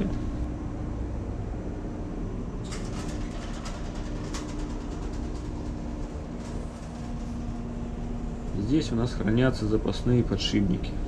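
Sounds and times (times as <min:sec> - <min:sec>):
engine-room machinery drone: 0:00.0 - 0:11.0
light clicks and rattles: 0:02.6 - 0:09.7.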